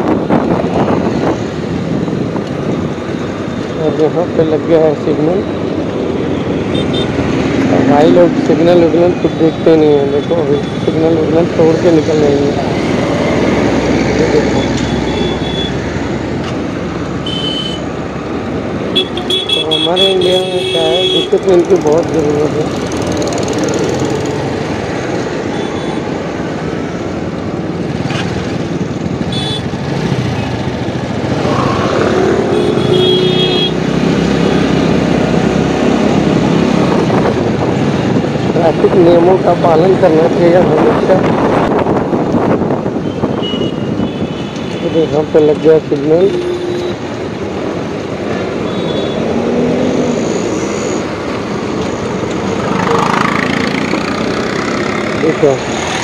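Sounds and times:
motorbike and scooter engines rumbling: 0:00.0 - 0:56.0
bus passing close by: 0:49.3 - 0:56.0.

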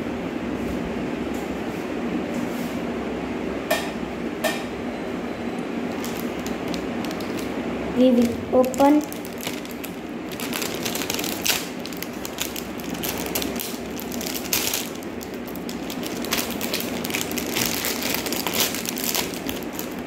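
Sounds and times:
plastic sachet crinkling: 0:05.8 - 0:20.0.

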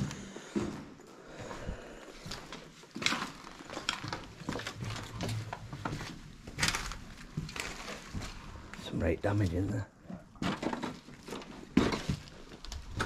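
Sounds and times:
footsteps crunching on rubble: 0:02.2 - 0:09.5, 0:10.3 - 0:13.0.

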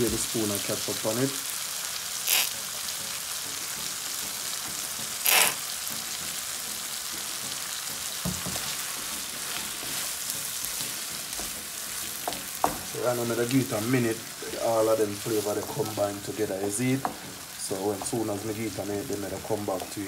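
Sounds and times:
vegetables sizzling in a frying pan: 0:00.0 - 0:20.0
wooden spoon stirring a pan: 0:08.0 - 0:20.0.

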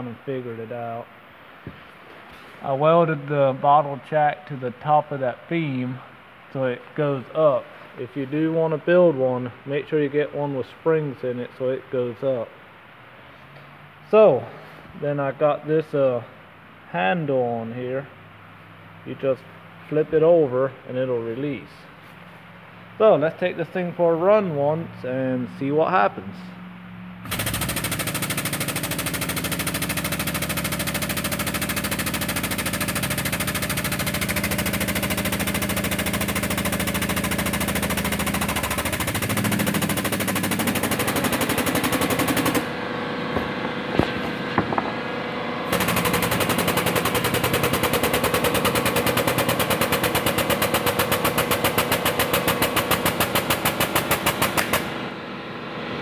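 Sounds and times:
air pump chattering: 0:27.2 - 0:42.7, 0:45.7 - 0:55.0.

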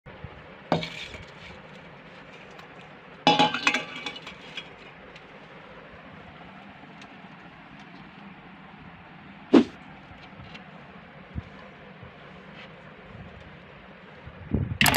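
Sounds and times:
steel dishes clinking: 0:00.8 - 0:01.5, 0:03.3 - 0:04.8.

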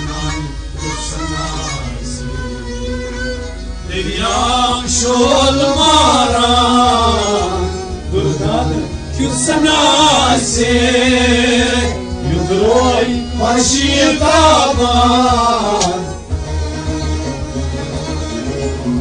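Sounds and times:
man singing: 0:00.0 - 0:16.3
harmonium chords: 0:00.0 - 0:19.0
low drum beat: 0:04.8 - 0:19.0.

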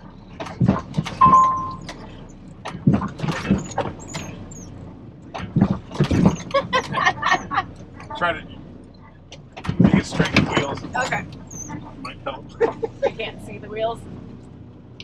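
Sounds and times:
clunks and knocks: 0:00.0 - 0:13.0
truck engine running low: 0:00.0 - 0:15.0
short beep: 0:01.2 - 0:01.9.

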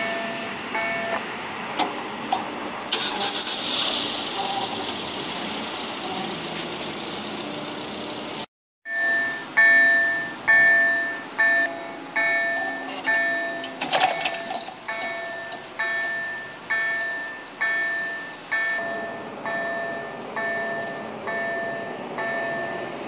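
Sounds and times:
crossing warning bell: 0:00.0 - 0:01.5, 0:07.4 - 0:23.0
train wheels on rails: 0:03.9 - 0:23.0.

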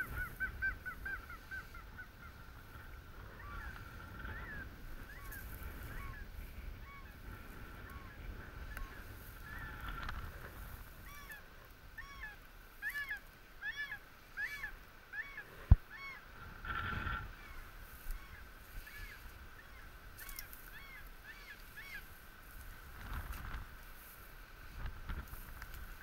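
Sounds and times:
goose honking: 0:00.0 - 0:02.5.

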